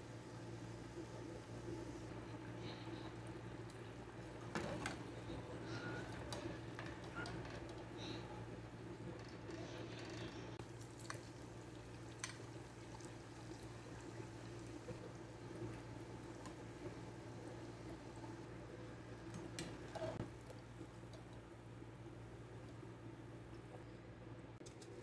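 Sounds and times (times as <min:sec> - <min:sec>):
donuts sizzling in oil: 0:10.6 - 0:23.4.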